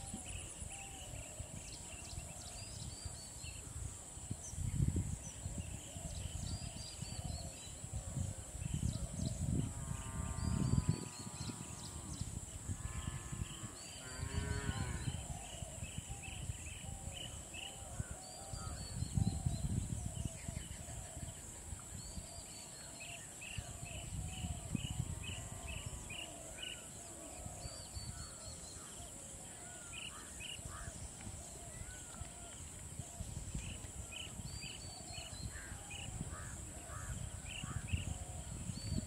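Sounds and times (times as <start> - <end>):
high insect drone: 7.6 - 21.9.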